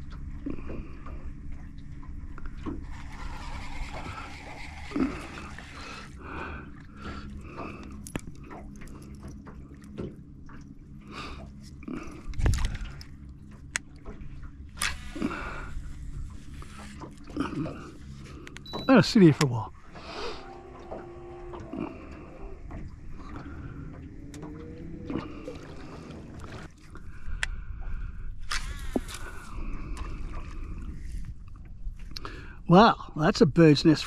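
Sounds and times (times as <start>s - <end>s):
steady low hum: 0.0s - 34.0s
water sounds: 0.0s - 34.0s
fishing gear clicks and knocks: 7.3s - 10.3s, 11.5s - 14.2s.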